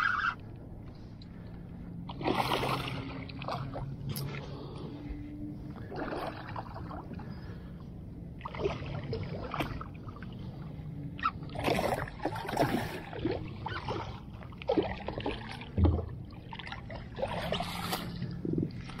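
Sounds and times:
low steady hum: 0:00.0 - 0:19.0
water splashing against boat hull: 0:02.0 - 0:04.8, 0:05.7 - 0:07.3, 0:08.4 - 0:10.5, 0:11.2 - 0:19.0.

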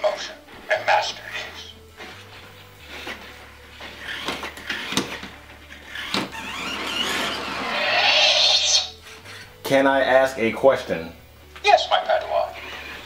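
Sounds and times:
toy motors whirring and clicking: 0:03.8 - 0:09.0.

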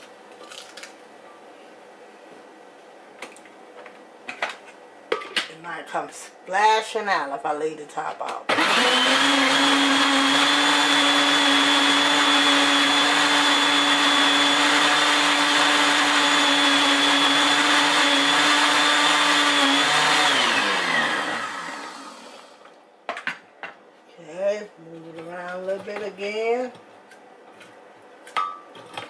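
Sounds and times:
blender blade winding down: 0:08.5 - 0:22.6
blender running: 0:08.5 - 0:22.7.

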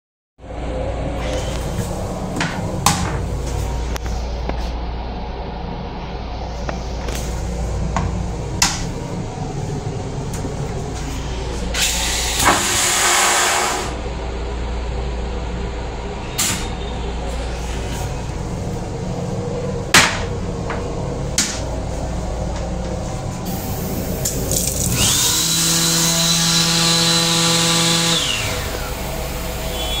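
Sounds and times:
toilet flush with motor hum: 0:11.0 - 0:14.0, 0:23.5 - 0:30.0
train rumble: 0:17.0 - 0:24.4.

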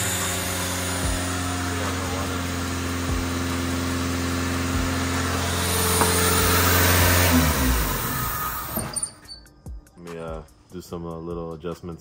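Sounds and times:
car engine running and revving: 0:00.0 - 0:08.8.

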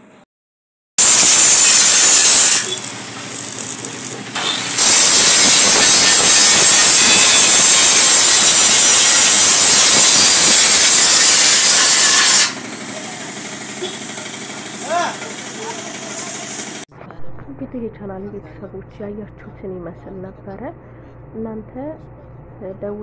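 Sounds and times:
angle grinder grinding metal: 0:01.0 - 0:16.8.

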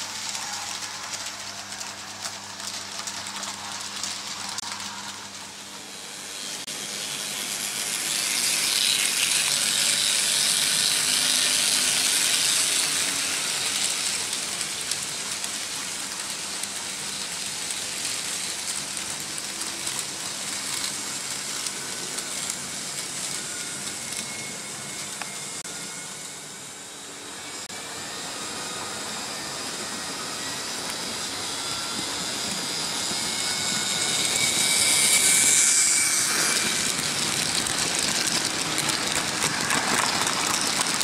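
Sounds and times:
model train wheels rattling: 0:06.5 - 0:25.6, 0:31.8 - 0:41.0.

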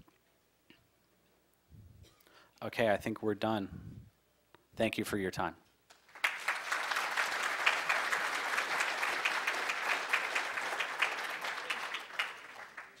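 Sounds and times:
audience applauding: 0:05.9 - 0:13.0.

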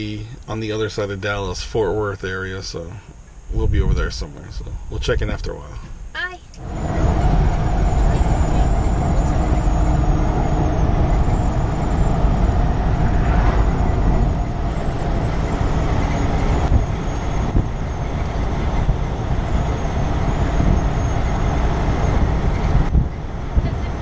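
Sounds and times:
road noise: 0:00.0 - 0:24.0
truck diesel engine running: 0:06.5 - 0:24.0.

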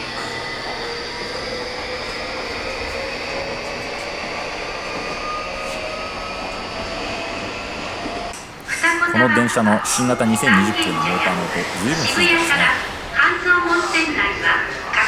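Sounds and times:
electric train running rumble: 0:00.0 - 0:15.0.

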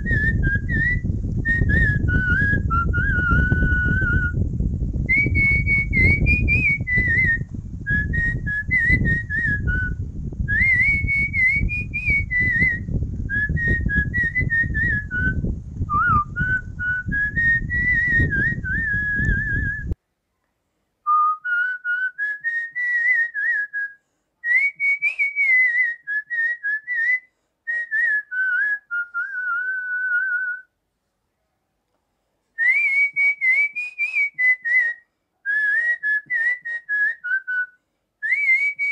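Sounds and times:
person whistling a tune: 0:00.0 - 0:04.4, 0:05.1 - 0:20.0, 0:21.1 - 0:30.7, 0:32.6 - 0:38.9
low rumble: 0:00.0 - 0:20.0.

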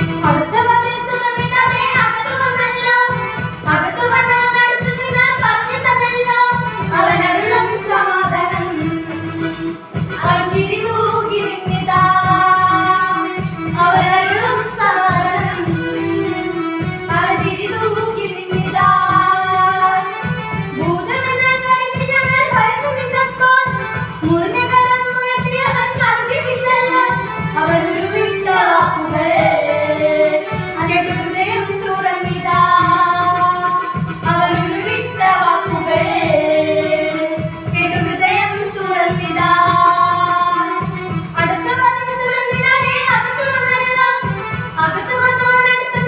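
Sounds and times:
girls singing in unison: 0:00.3 - 0:08.9, 0:24.3 - 0:40.8
instrumental music with low beat: 0:18.5 - 0:21.1.

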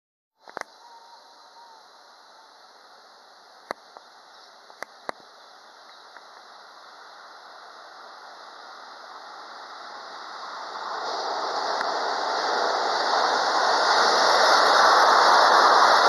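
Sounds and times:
train wheels on rail: 0:03.7 - 0:16.0.

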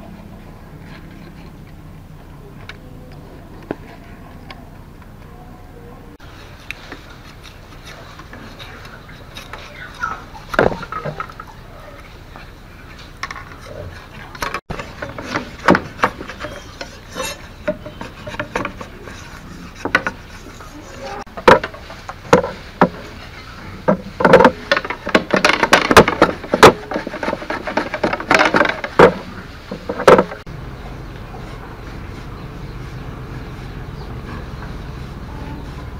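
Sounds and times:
machete knocking and scraping bamboo: 0:07.2 - 0:11.5, 0:14.3 - 0:30.5.

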